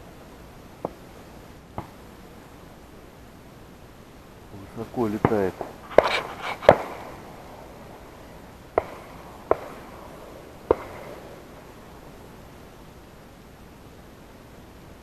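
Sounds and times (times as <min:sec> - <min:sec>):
shotgun shots echoing: 0:04.8 - 0:12.2.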